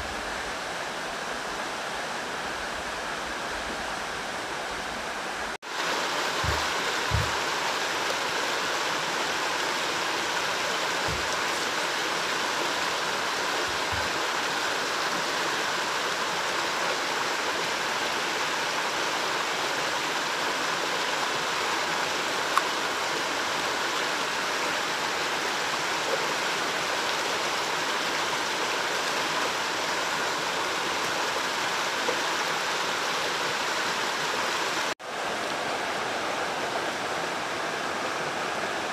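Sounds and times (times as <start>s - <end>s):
stream running: 0.0s - 38.9s
soft low thuds: 6.4s - 7.4s.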